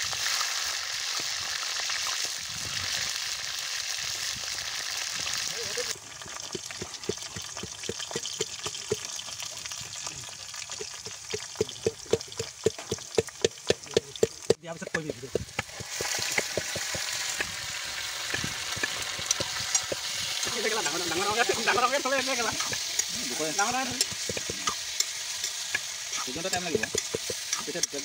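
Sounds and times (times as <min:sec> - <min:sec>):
meat sizzling in a wok: 0:00.0 - 0:28.0
wooden pestle knocking in metal cup: 0:06.3 - 0:09.2, 0:10.8 - 0:17.6, 0:18.3 - 0:21.0, 0:23.9 - 0:27.6.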